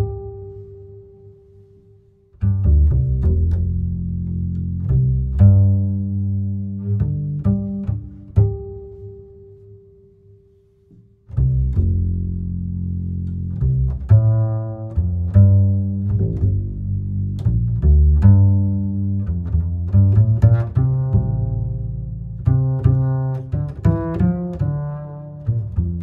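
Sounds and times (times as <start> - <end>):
music with bass and plucked strings: 0.0 - 26.0.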